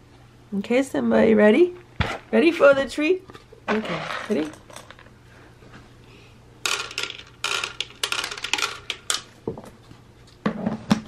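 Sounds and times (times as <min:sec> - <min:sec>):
kibble clattering on plastic: 0:03.7 - 0:05.1, 0:06.6 - 0:09.3.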